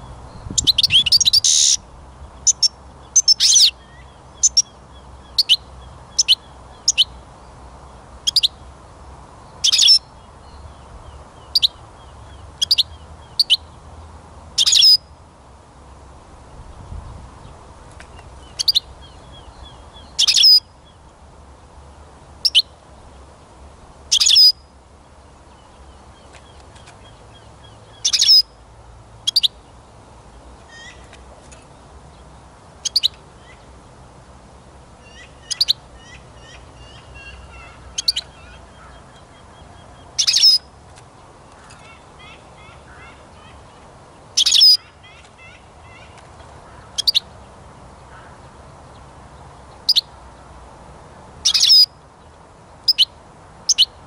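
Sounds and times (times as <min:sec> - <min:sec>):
soft bird twittering: 0:00.0 - 0:01.8, 0:02.4 - 0:07.2, 0:08.2 - 0:08.6, 0:09.6 - 0:13.7, 0:14.6 - 0:15.0, 0:18.4 - 0:21.0, 0:24.1 - 0:24.6, 0:25.5 - 0:28.5, 0:29.3 - 0:29.7, 0:32.8 - 0:33.7, 0:35.0 - 0:40.7, 0:41.6 - 0:47.3, 0:51.4 - 0:52.0, 0:52.8 - 0:54.0
sharp high bird calls: 0:00.4 - 0:01.8, 0:02.4 - 0:07.2, 0:08.3 - 0:08.6, 0:09.6 - 0:10.1, 0:14.6 - 0:15.0, 0:18.4 - 0:20.7, 0:22.4 - 0:22.7, 0:24.1 - 0:24.6, 0:27.4 - 0:28.5, 0:32.8 - 0:33.6, 0:35.0 - 0:40.7, 0:44.4 - 0:47.3, 0:51.4 - 0:51.9, 0:52.9 - 0:54.0.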